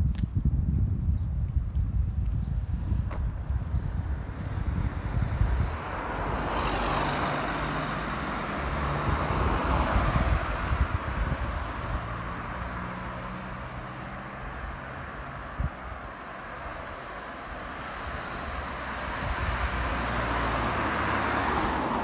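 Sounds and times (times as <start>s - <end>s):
motor vehicle passing by: 4.2s - 15.7s, 16.7s - 22.0s.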